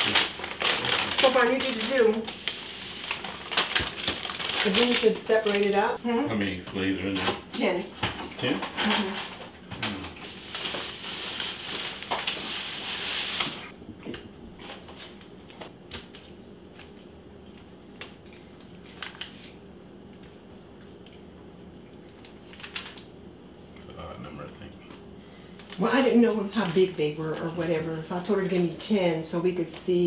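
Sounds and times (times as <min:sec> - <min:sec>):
paper and plastic wrapping crinkling: 0:00.0 - 0:06.0, 0:08.0 - 0:13.7, 0:14.6 - 0:19.6, 0:22.0 - 0:23.1, 0:25.5 - 0:30.0.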